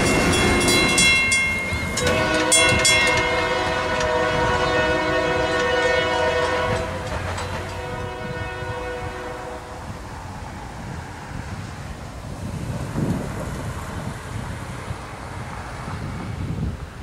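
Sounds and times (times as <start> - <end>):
train air horn: 0.0 - 10.1
train rumble: 0.0 - 17.0.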